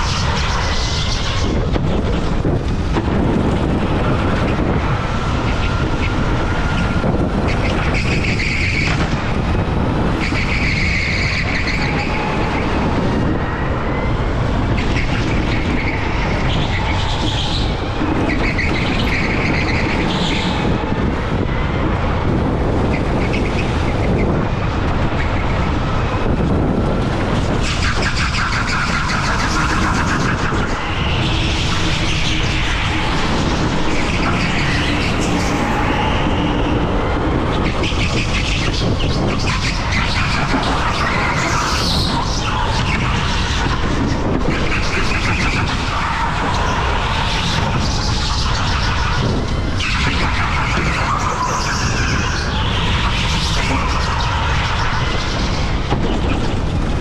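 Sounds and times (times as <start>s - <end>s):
go-kart engine rumble: 0.0s - 57.0s
wind noise on microphone: 0.0s - 57.0s.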